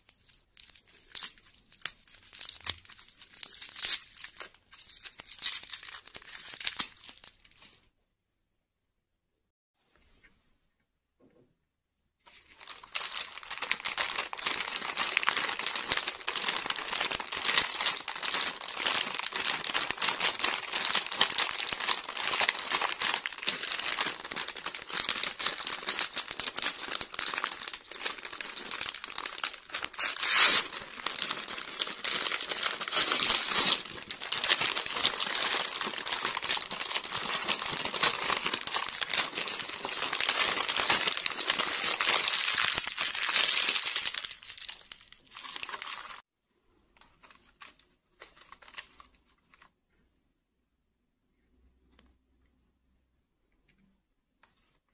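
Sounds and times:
plastic wrapper crinkling: 0.0 - 7.8, 12.3 - 46.2, 46.9 - 49.7.

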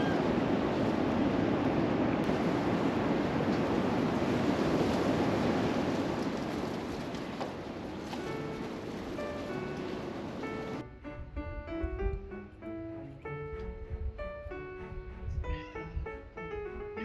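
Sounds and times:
steady rushing background noise: 0.0 - 10.9.

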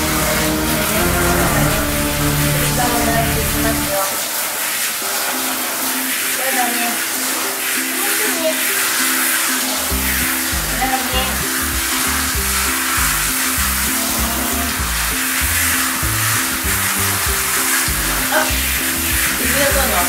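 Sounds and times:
background music with bass: 0.0 - 4.0, 9.9 - 20.0
shower spray hissing: 0.0 - 20.0.

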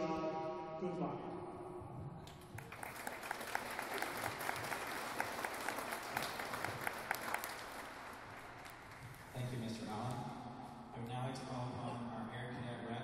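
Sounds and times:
audience applauding: 2.2 - 9.6.

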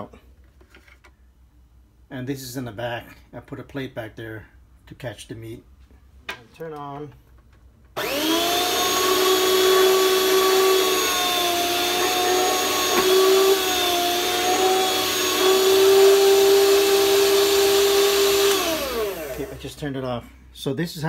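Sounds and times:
meat slicer whining: 8.0 - 19.8.

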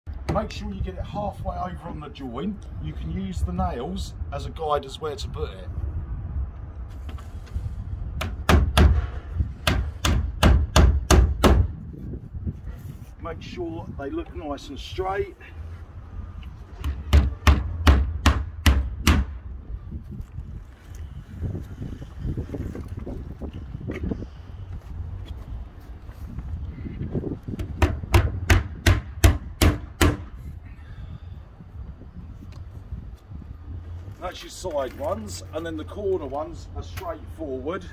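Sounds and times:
hammer nailing wood: 8.2 - 11.7, 16.8 - 19.4, 27.6 - 30.3.

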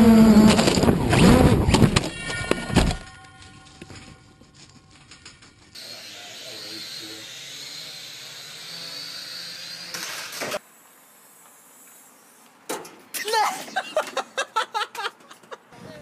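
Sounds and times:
drone propellers whirring: 0.0 - 2.1.

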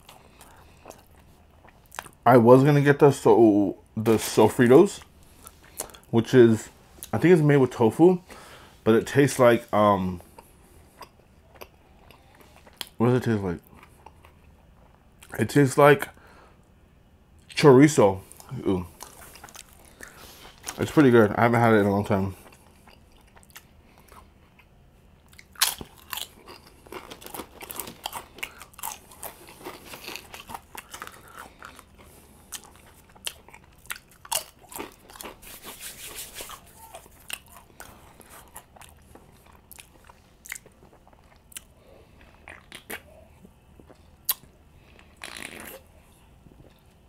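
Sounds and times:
crunching tortilla chips: 25.2 - 41.7.

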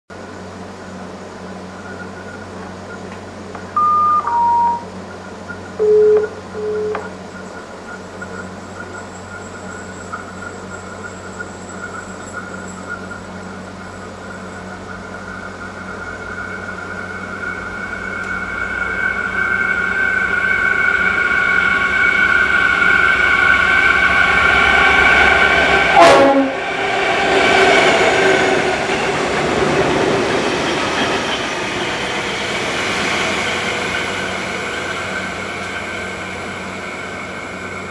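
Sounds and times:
wheels rumbling on rail: 0.1 - 3.8, 4.5 - 37.9
diesel locomotive passing: 0.1 - 37.9
engine whine: 0.1 - 37.9
locomotive horn notes: 25.9 - 26.6.

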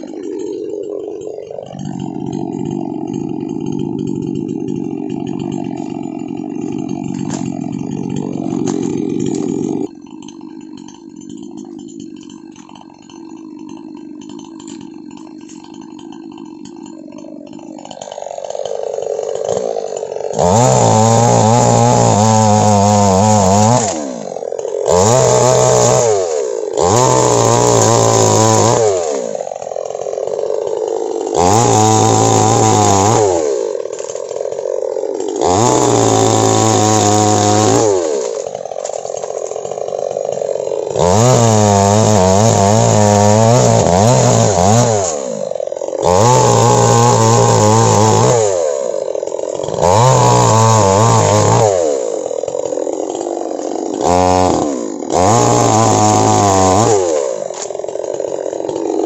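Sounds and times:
chainsaw idling and revving: 0.0 - 59.0.

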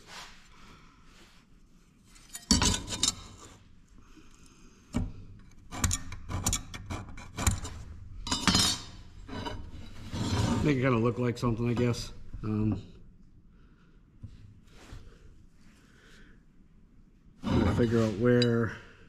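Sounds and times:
steel scribe scraping metal: 17.4 - 18.8.

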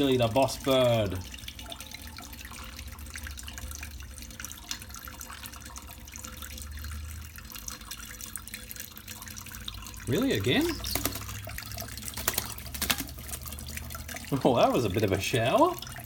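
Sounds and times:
tap water running into sink: 0.0 - 16.0
bird splashing in water: 10.1 - 14.8.

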